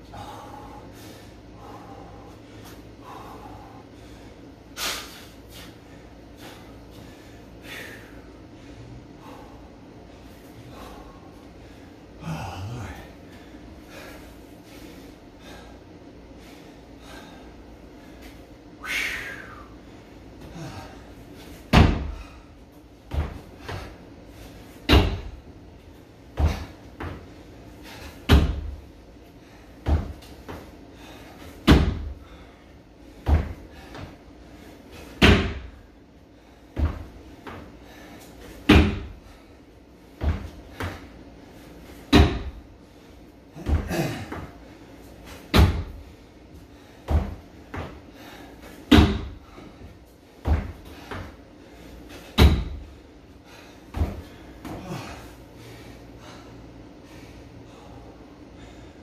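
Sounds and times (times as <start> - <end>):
feet thudding on wooden box: 21.4 - 22.4, 23.0 - 24.0, 24.7 - 25.4, 26.3 - 28.8, 29.8 - 32.4, 33.2 - 34.2, 34.9 - 35.8, 36.7 - 39.4, 40.2 - 41.1, 41.9 - 42.6, 43.6 - 44.6, 45.2 - 46.1, 47.0 - 51.4, 52.1 - 53.0, 53.9 - 55.2.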